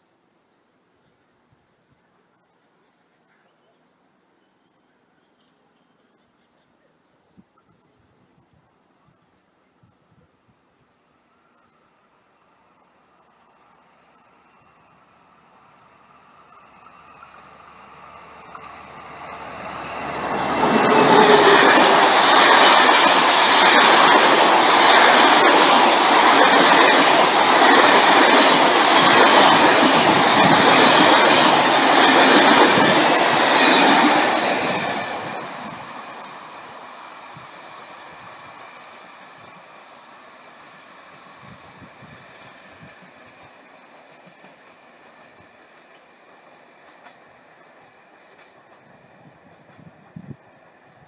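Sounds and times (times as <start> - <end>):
passenger train passing: 11.0 - 51.0.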